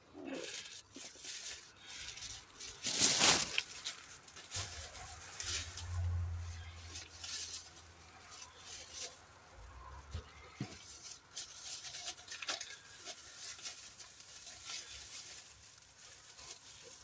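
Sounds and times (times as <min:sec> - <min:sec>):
handling noise clicks and rustling: 0:00.4 - 0:17.0.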